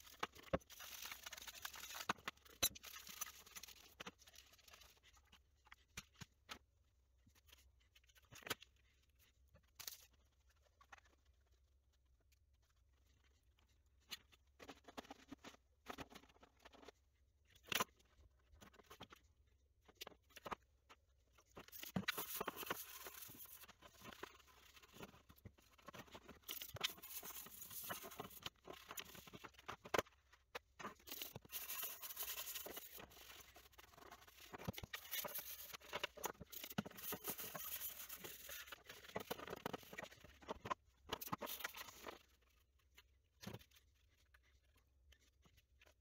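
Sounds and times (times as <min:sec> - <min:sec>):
brush scrubbing plastic: 0:21.7 - 0:42.2.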